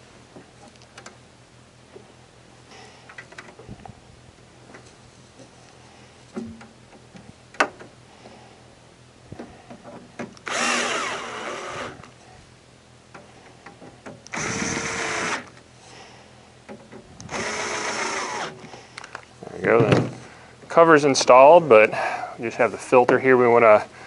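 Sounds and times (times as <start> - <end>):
cordless drill driving screws: 10.4 - 12.1, 14.3 - 15.6, 17.2 - 18.6.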